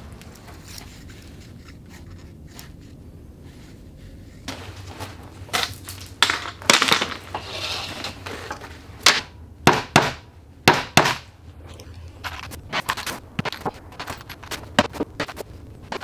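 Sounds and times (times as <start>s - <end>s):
scraping and rustling of tools: 0.0s - 9.0s.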